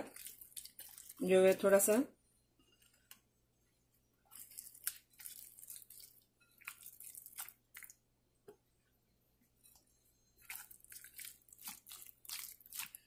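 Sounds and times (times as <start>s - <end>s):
wet squishing of hand rubbing fish: 0.0s - 1.4s, 4.2s - 8.0s, 10.4s - 13.0s.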